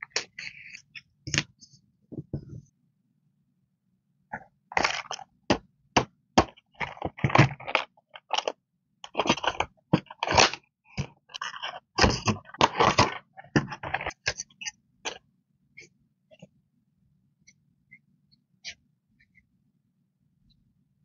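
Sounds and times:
plastic packaging crinkling and clicking: 6.5s - 14.4s.

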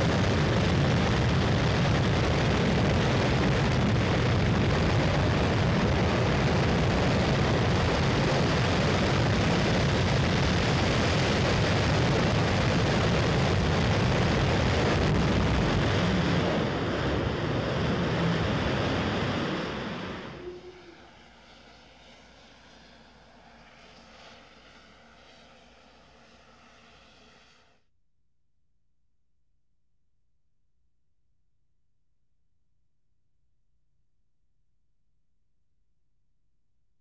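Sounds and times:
rocket engine rumble: 0.0s - 23.8s.

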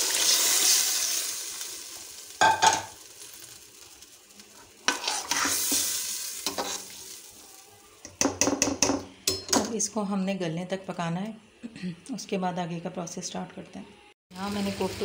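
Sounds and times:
water sizzling in a hot pot: 0.0s - 8.9s, 14.3s - 15.0s
metal spoon scraping a pot: 4.8s - 7.0s.

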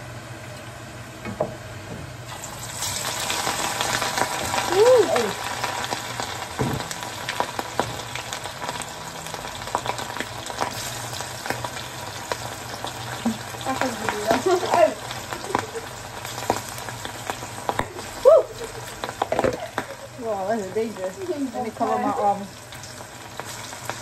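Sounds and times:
food sizzling in a pan: 0.7s - 24.0s.

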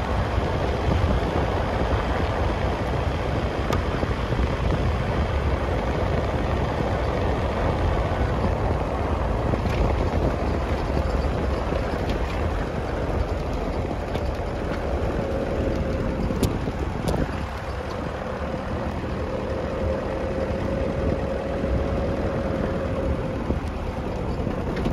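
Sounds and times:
vehicle rumbling on dirt track: 0.0s - 24.9s
light clicks and rattles: 9.5s - 18.2s.

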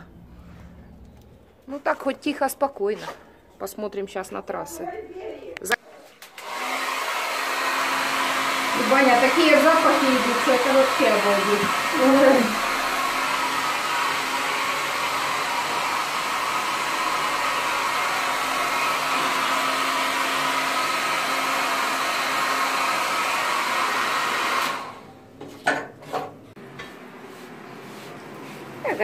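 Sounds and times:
hair dryer blowing: 6.2s - 25.1s.

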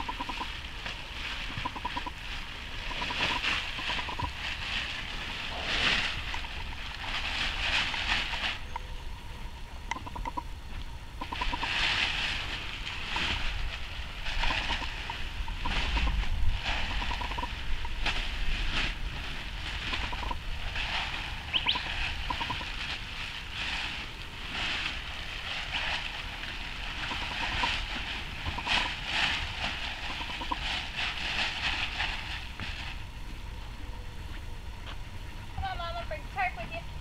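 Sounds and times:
wind rumbling on microphone: 0.0s - 37.0s
plastic tarp rustling: 0.4s - 8.7s, 11.3s - 33.1s.

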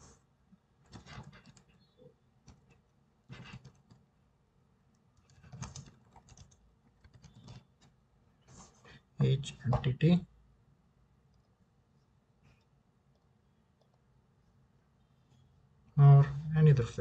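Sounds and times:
typing on computer keyboard: 0.9s - 1.8s, 2.4s - 4.1s, 5.2s - 8.0s.

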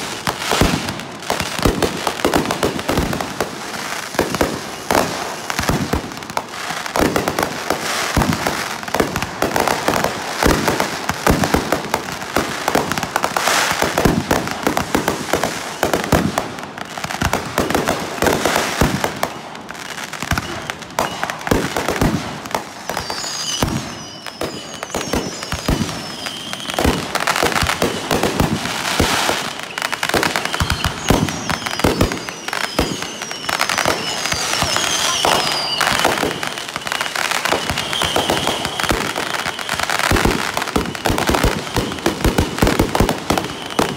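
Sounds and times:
fireworks bangs and crackling: 0.0s - 43.9s
high falling firework whistles: 17.2s - 43.9s.

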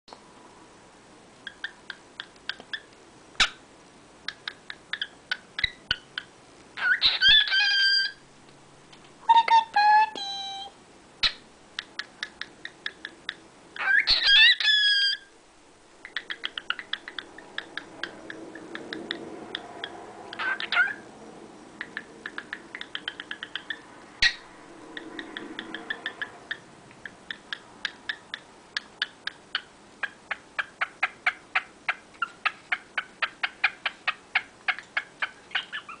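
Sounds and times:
cockatiel rapid clicks: 1.5s - 2.9s, 11.8s - 13.4s, 16.0s - 19.9s, 21.8s - 23.8s
cockatiel calling: 4.9s - 8.2s, 13.8s - 15.3s, 16.1s - 21.1s, 21.8s - 26.6s, 29.0s - 36.0s.

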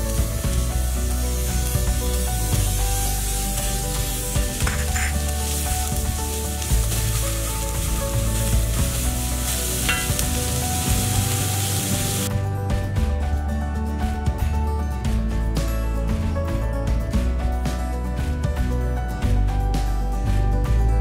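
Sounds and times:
onions sizzling in oil: 0.0s - 12.3s
background music: 0.0s - 21.0s.

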